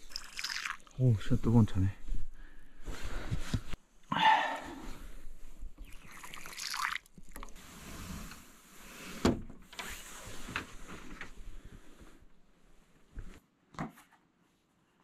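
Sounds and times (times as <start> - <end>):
rustling and scraping: 2.0 - 3.8, 7.6 - 12.2.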